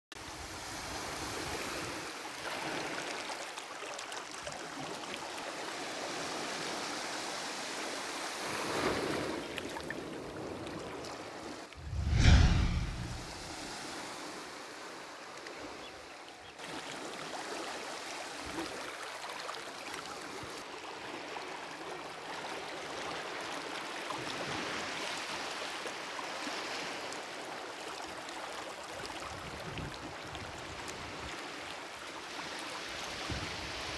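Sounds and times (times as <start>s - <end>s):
waves washing on a beach: 4.8s - 11.6s
loud rumble: 11.8s - 13.5s.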